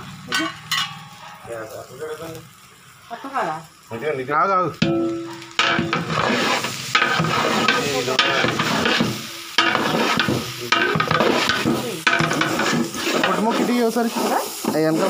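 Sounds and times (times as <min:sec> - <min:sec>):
ladle scraping metal pot: 0:04.8 - 0:15.0.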